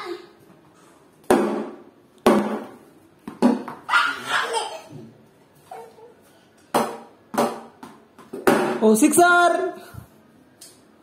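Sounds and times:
plastic bat and ball knocking on floor: 0:01.3 - 0:03.8, 0:06.7 - 0:08.9.

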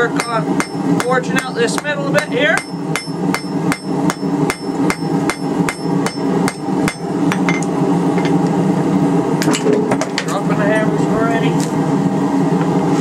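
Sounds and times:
hammer striking hot metal on anvil: 0:00.0 - 0:08.4
steady low drone: 0:00.0 - 0:13.0.

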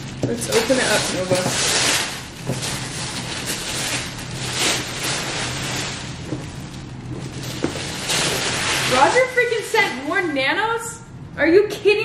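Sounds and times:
tissue paper rustling: 0:00.4 - 0:09.8.

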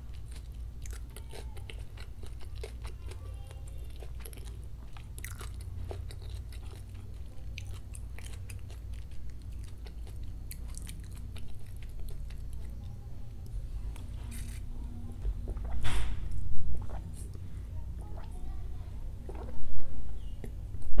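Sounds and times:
low steady hum: 0:00.0 - 0:21.0
drinking through a straw: 0:19.2 - 0:19.8
swallowing: 0:19.2 - 0:20.6.

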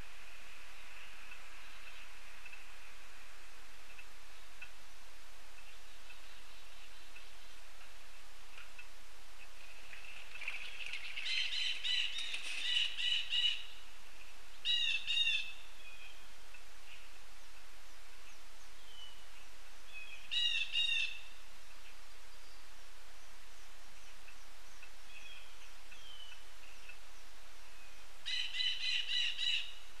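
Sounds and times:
woodpecker calling: 0:10.4 - 0:13.7, 0:14.6 - 0:15.6, 0:20.2 - 0:21.2, 0:28.2 - 0:29.8.

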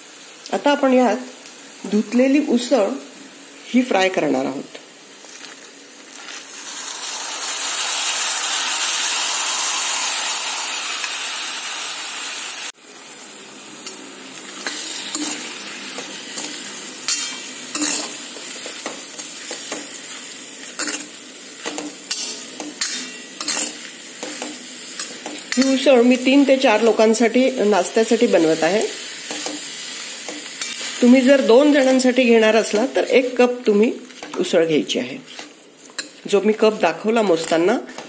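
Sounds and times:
pulses sizzling in hot oil: 0:00.0 - 0:38.0
steel ladle scraping and clinking: 0:16.4 - 0:18.2, 0:20.7 - 0:25.8.

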